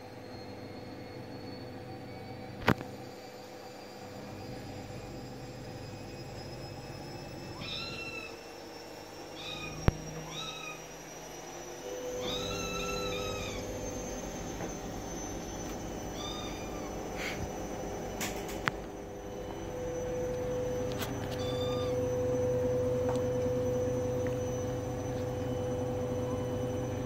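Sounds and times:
kitten meowing: 0:07.6 - 0:08.4, 0:09.4 - 0:10.8, 0:12.2 - 0:13.7, 0:16.1 - 0:17.0, 0:21.2 - 0:22.2.

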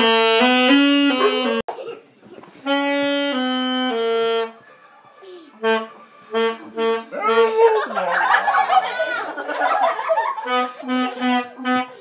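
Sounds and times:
saxophone playing held notes: 0:00.0 - 0:01.6, 0:02.6 - 0:04.6, 0:05.6 - 0:07.6, 0:10.4 - 0:12.0.

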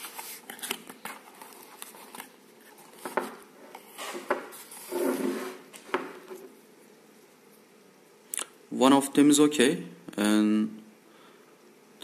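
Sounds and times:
cardboard rustling: 0:00.0 - 0:06.5.

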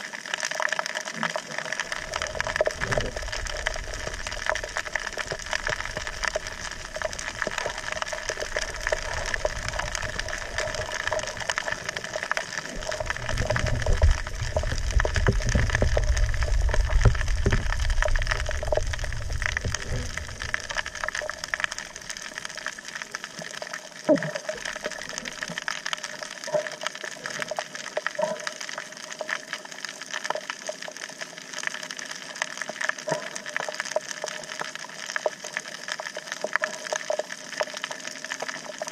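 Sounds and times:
small crackling clicks: 0:00.0 - 0:38.9
rumbling surge of water: 0:01.5 - 0:27.6.

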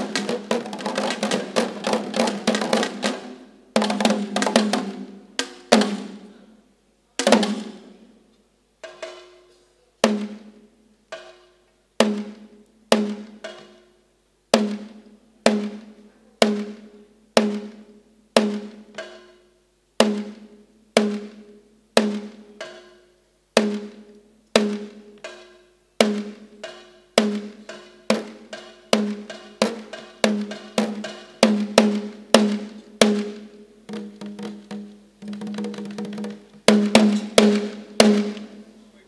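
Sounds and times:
drum strokes ringing low: 0:24.6 - 0:38.7.

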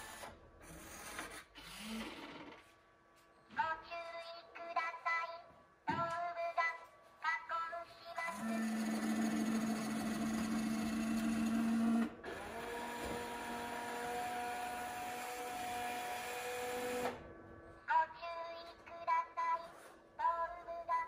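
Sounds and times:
electric motors humming: 0:08.2 - 0:17.4.

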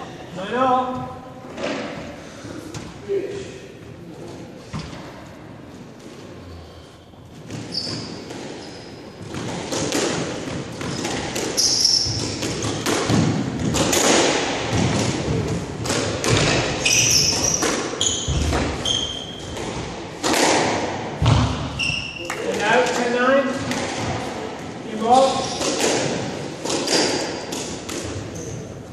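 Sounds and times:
squash ball striking rackets and walls: 0:00.9 - 0:03.0, 0:07.3 - 0:28.9
shoes squeaking on wooden floor: 0:07.4 - 0:09.4, 0:10.8 - 0:12.9, 0:16.4 - 0:19.9, 0:21.7 - 0:22.4, 0:25.1 - 0:25.9.

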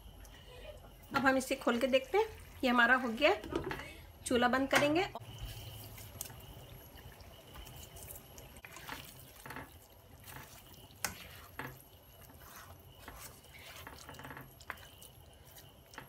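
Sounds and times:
spatula stirring food in a pan: 0:05.2 - 0:16.0.

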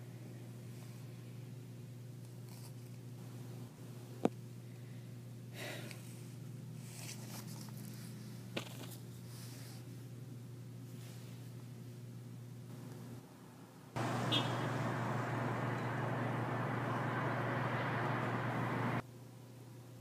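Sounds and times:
steady low hum: 0:07.6 - 0:19.0.

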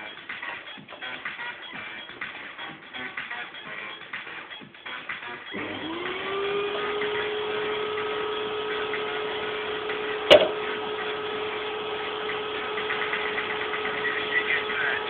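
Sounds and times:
small electric motor humming: 0:05.6 - 0:15.0
sharp knock: 0:10.3 - 0:10.6.

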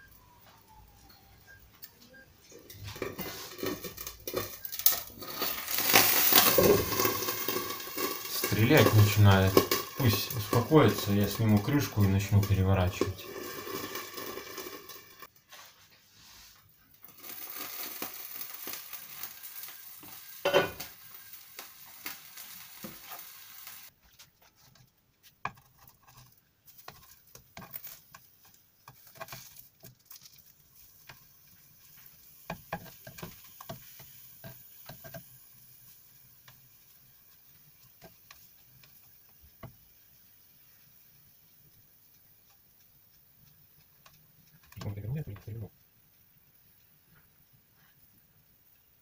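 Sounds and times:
oil sizzling in a frying pan: 0:00.0 - 0:24.0, 0:25.4 - 0:49.0
plastic spatula scraping a pan: 0:02.7 - 0:15.3, 0:24.1 - 0:35.3.

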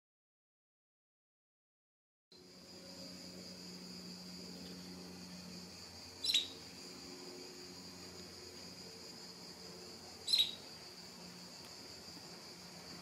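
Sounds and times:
high-pitched hiss: 0:02.4 - 0:13.0
canary call notes: 0:06.2 - 0:06.6, 0:10.2 - 0:10.7.

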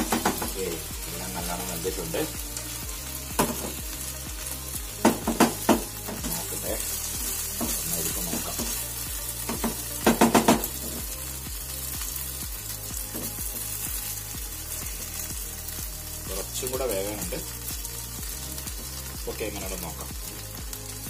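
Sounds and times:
wooden spatula knocking on pan: 0:00.0 - 0:00.6, 0:03.4 - 0:03.8, 0:05.0 - 0:06.4, 0:07.6 - 0:08.8, 0:09.5 - 0:11.0
vegetables sizzling in a pan: 0:00.0 - 0:21.0.

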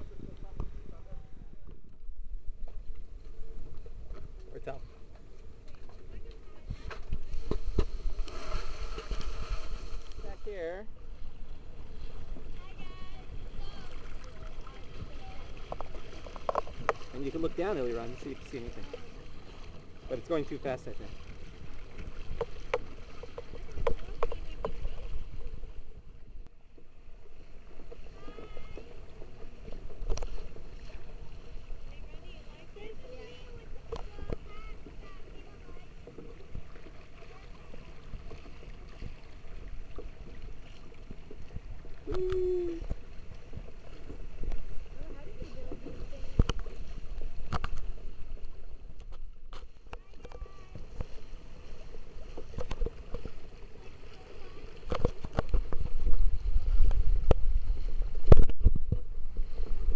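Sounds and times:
water rushing and splashing: 0:00.0 - 0:26.4, 0:27.0 - 0:59.9
wind on microphone: 0:41.6 - 0:49.6, 0:54.9 - 0:59.9
wind rumble on microphone: 0:54.8 - 0:59.9.

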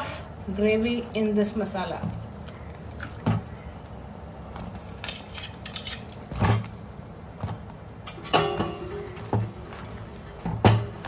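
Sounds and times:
metal ladle knocking on pot: 0:08.3 - 0:09.4.

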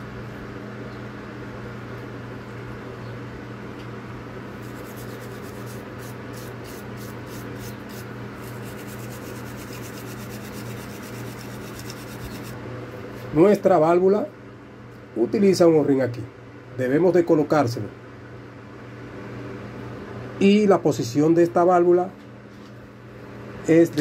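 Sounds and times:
steel wool scrubbing plastic: 0:04.6 - 0:12.6.

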